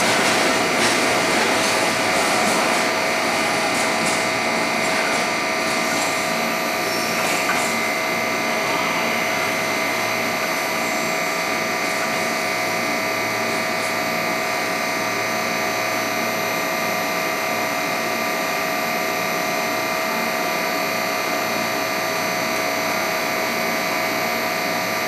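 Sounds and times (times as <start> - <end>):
freight train rolling on rails: 0.0 - 15.9.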